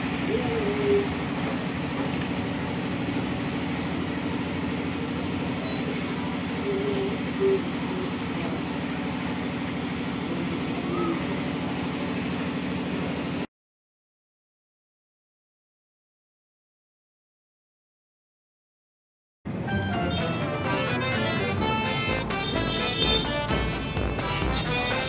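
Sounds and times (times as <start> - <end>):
low machine drone: 0.0 - 13.5, 19.5 - 25.0.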